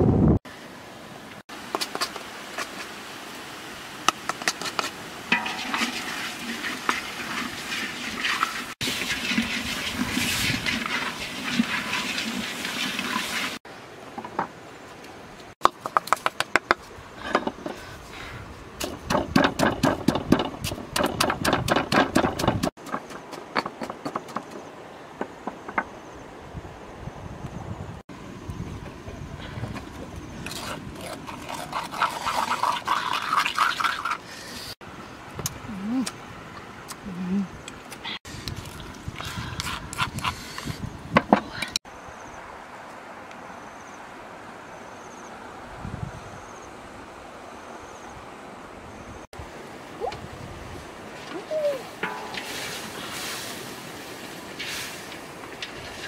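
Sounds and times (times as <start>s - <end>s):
water splashing: 5.2s - 13.6s
pestle knocking in stone mortar: 18.8s - 24.6s.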